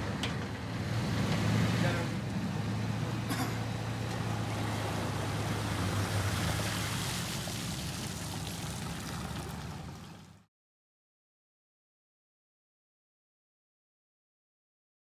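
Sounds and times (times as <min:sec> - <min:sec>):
pickup truck engine hum: 0:00.0 - 0:10.5
water running off trailer: 0:00.0 - 0:10.5.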